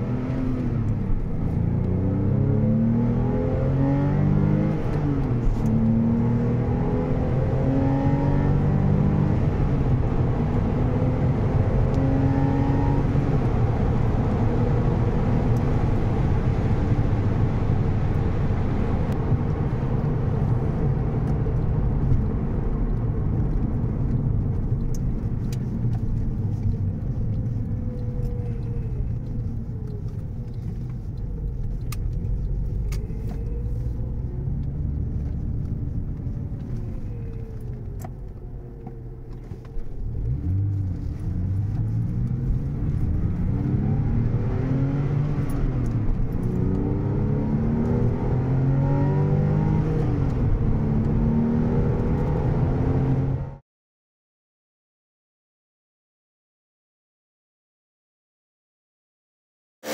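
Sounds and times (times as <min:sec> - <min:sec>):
road noise: 0:00.0 - 0:53.6
car engine running: 0:12.8 - 0:48.2.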